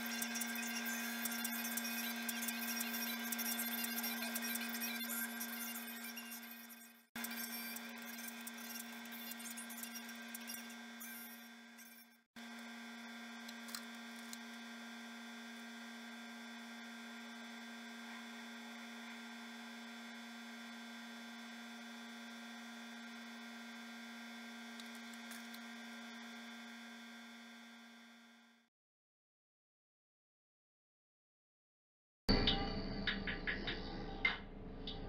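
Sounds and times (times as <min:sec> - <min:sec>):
electric fan humming: 0:00.0 - 0:11.6.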